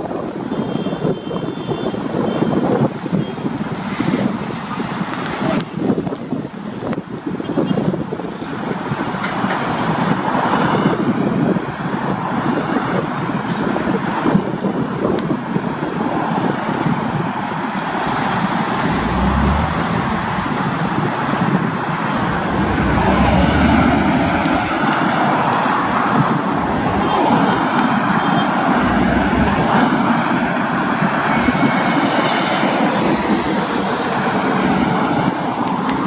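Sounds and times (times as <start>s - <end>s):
passing road traffic: 15.5s - 36.0s
diesel locomotive engine running: 18.8s - 20.9s, 22.1s - 25.5s, 26.5s - 27.7s, 28.7s - 30.6s.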